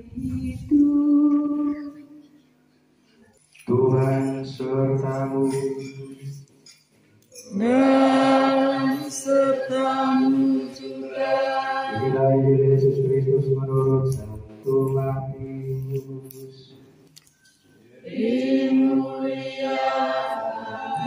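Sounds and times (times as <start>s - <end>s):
man chanting through microphone: 0.0s - 1.2s, 3.7s - 6.4s, 11.9s - 16.8s.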